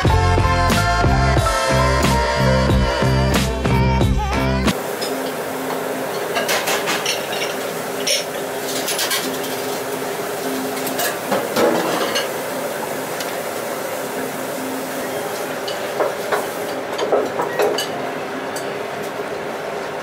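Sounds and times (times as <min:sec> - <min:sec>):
restaurant kitchen background noise: 0:04.7 - 0:20.0
glass and tableware clinking: 0:06.1 - 0:09.6, 0:10.8 - 0:12.4, 0:15.6 - 0:18.8.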